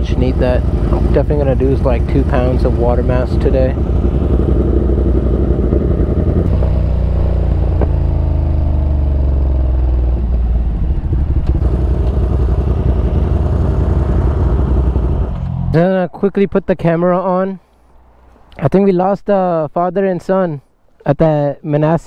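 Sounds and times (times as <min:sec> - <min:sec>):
motorcycle engine running: 0:00.0 - 0:15.8
wind rumble: 0:00.0 - 0:18.5.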